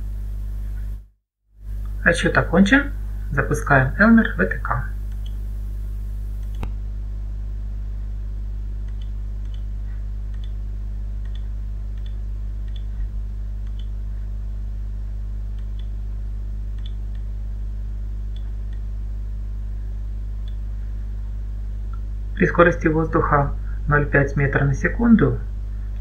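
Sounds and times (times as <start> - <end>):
low electrical hum: 0.0 - 26.0
computer mouse clicks: 5.1 - 5.4, 6.4 - 6.7, 8.9 - 9.7, 10.3 - 10.6, 11.2 - 13.0, 13.6 - 13.9, 16.8 - 17.2, 18.3 - 18.8.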